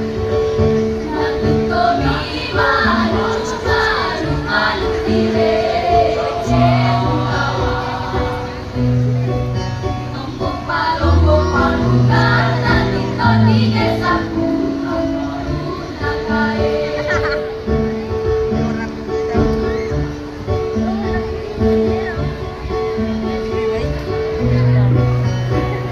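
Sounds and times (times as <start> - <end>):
choir singing in unison: 1.0 - 8.8, 10.1 - 17.8.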